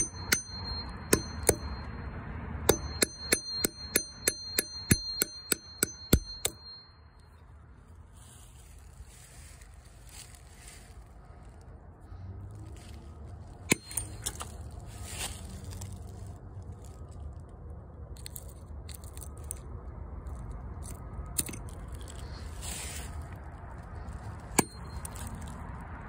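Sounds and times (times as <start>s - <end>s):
hatchet knocking on wood: 0.0s - 1.8s, 2.7s - 6.8s.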